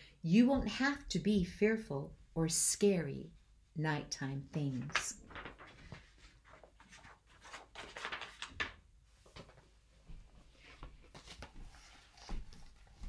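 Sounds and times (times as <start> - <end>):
book pages turning: 4.7 - 9.7, 10.5 - 13.0.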